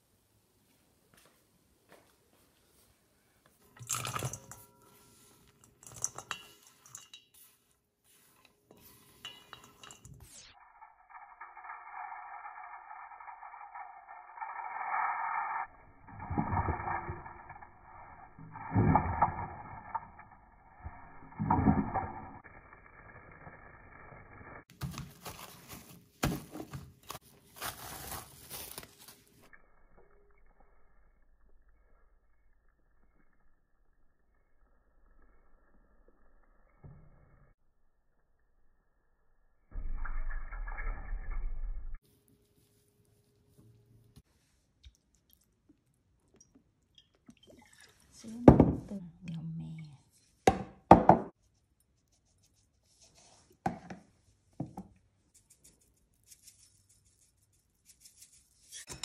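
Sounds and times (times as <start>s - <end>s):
carrot clinking into metal bowl: 5.6s - 7.5s
plastic cling wrap crinkling: 24.7s - 29.4s.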